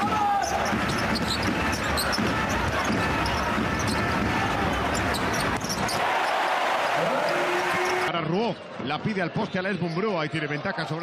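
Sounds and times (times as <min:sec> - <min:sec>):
arena crowd hubbub: 0:00.0 - 0:11.0
basketball bouncing on hardwood floor: 0:00.5 - 0:04.3.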